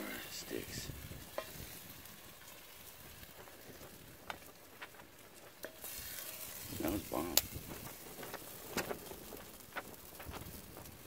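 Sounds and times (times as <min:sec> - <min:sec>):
campfire hissing: 0:00.0 - 0:11.0
fire crackling pops: 0:00.0 - 0:11.0.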